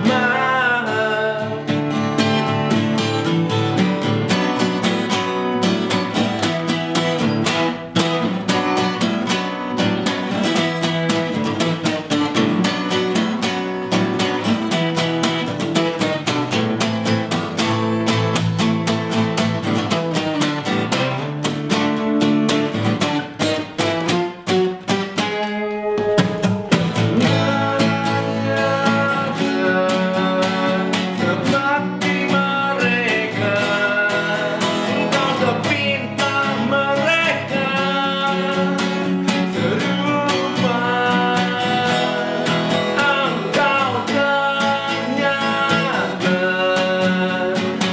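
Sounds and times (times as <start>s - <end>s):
man singing: 0.0s - 4.6s, 25.4s - 47.9s
acoustic guitars playing: 0.0s - 47.9s.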